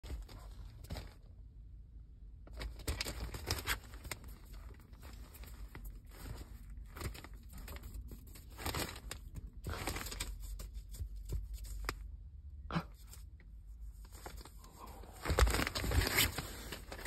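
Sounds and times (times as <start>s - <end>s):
newspaper rustling and crinkling: 2.5s - 12.1s, 13.8s - 17.0s.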